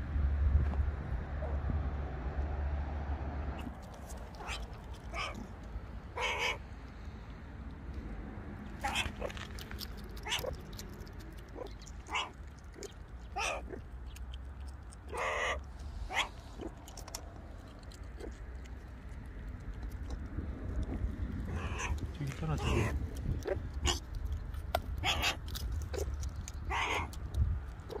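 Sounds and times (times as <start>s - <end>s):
meerkat calls: 4.3s - 5.5s, 6.1s - 6.6s, 8.8s - 9.4s, 10.2s - 10.7s, 11.4s - 13.8s, 15.0s - 16.7s, 20.9s - 24.0s, 24.7s - 27.2s.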